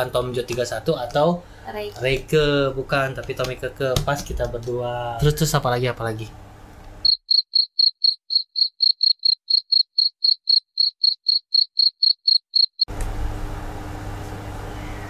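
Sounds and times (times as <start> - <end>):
faint room hum: 0.0 - 7.1, 12.9 - 15.0
cricket chirping: 7.0 - 12.9.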